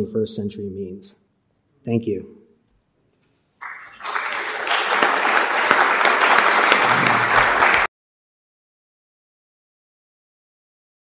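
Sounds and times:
audience applauding: 0:03.6 - 0:07.9.

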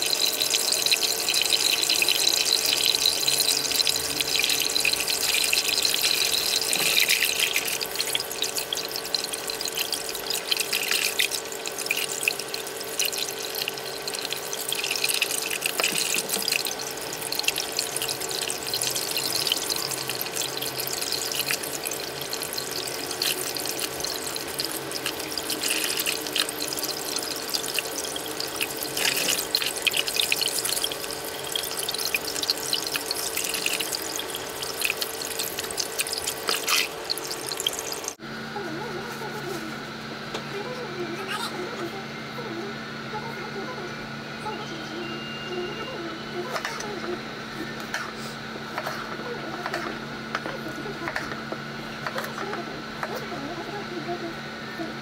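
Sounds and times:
tap water running and splashing: 0:00.0 - 0:38.2, 0:48.7 - 0:53.5
faint steady hum: 0:00.0 - 0:55.0.

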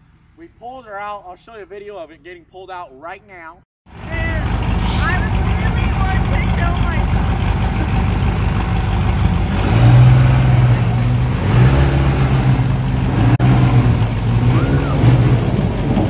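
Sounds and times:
truck engine running hard: 0:03.9 - 0:16.0.

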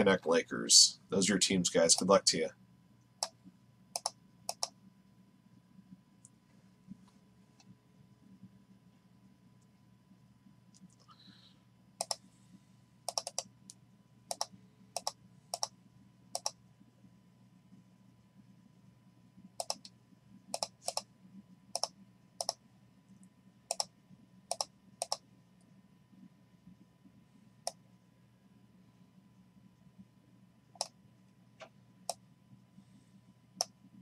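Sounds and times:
faint low steady hum: 0:00.0 - 0:34.0
computer mouse clicks: 0:03.2 - 0:04.8, 0:12.0 - 0:12.2, 0:13.1 - 0:16.6, 0:19.6 - 0:21.1, 0:21.7 - 0:22.6, 0:23.2 - 0:23.9, 0:24.5 - 0:25.7, 0:30.7 - 0:31.0, 0:31.6 - 0:32.2, 0:33.6 - 0:33.8.

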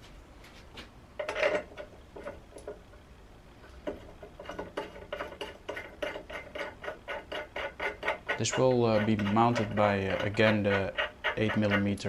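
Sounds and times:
metal bearing block clacking: 0:03.8 - 0:12.0.

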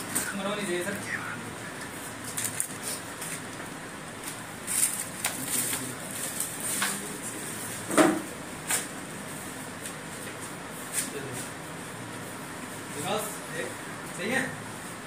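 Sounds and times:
fabric and packaging rustling: 0:02.0 - 0:07.8.

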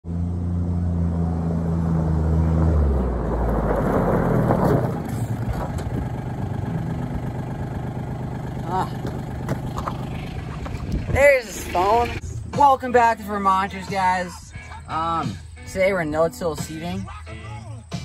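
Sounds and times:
utility vehicle engine: 0:00.0 - 0:12.4
tyres crunching over gravel: 0:02.7 - 0:12.3.

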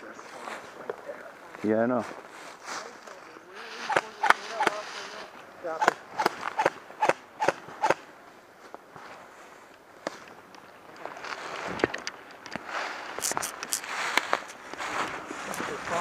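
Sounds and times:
footsteps crunching dry leaves: 0:01.5 - 0:05.3, 0:12.6 - 0:16.0.

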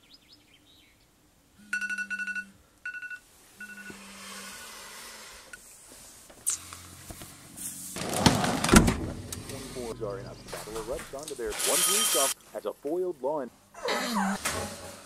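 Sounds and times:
phone alarm beeping: 0:01.6 - 0:04.0, 0:11.5 - 0:12.4.

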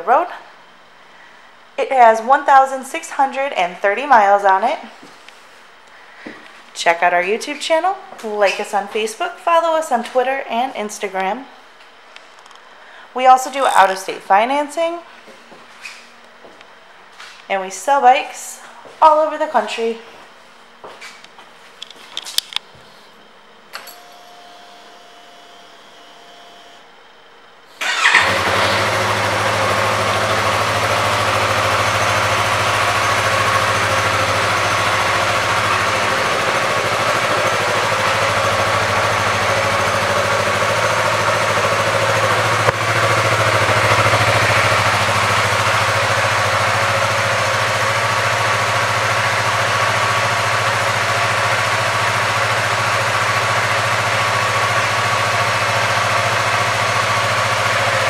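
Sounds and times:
motorcycle engine starting and idling: 0:27.8 - 0:58.0.

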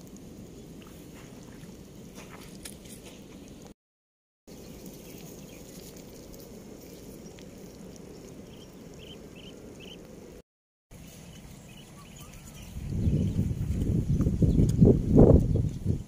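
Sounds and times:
low outdoor background noise: 0:04.5 - 0:12.8
faint high chirps: 0:11.0 - 0:13.3.

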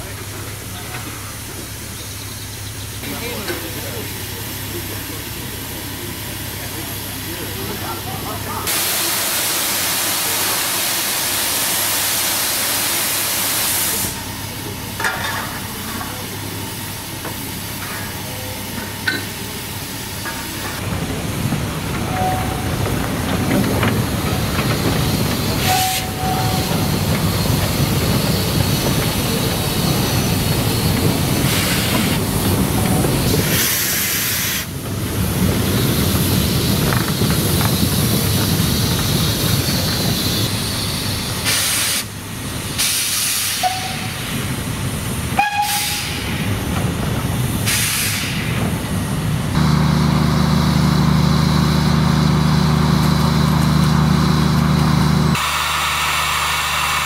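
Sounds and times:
locomotive rumble: 0:00.0 - 0:09.1, 0:14.0 - 0:57.0
steam hissing: 0:03.1 - 0:14.8, 0:19.4 - 0:46.7, 0:47.5 - 0:49.7, 0:55.2 - 0:57.0.

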